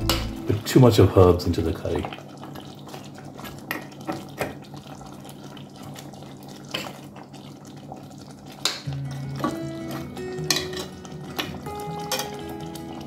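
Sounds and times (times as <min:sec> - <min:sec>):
curry bubbling in a pot: 0:00.1 - 0:13.0.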